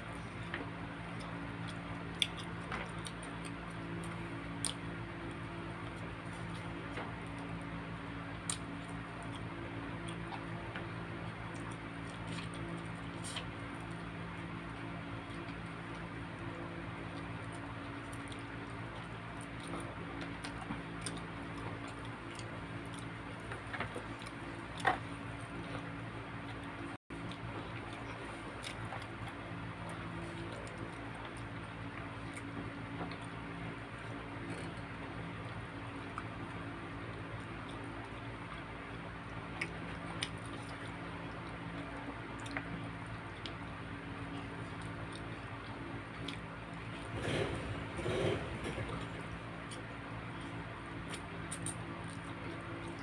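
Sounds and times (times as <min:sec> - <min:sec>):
steady low hum: 0:00.0 - 0:53.0
wet chewing: 0:00.2 - 0:07.6, 0:08.2 - 0:53.0
chewing mouth sounds: 0:00.3 - 0:07.5.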